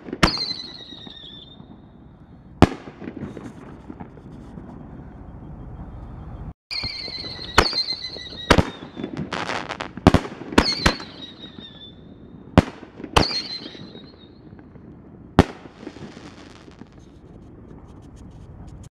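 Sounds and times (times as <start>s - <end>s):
firework bangs: 0.0s - 5.1s, 6.7s - 18.9s
firework whistles: 0.0s - 9.9s, 10.6s - 12.2s, 13.2s - 14.6s
firework crackling: 2.6s - 4.8s, 6.7s - 18.9s.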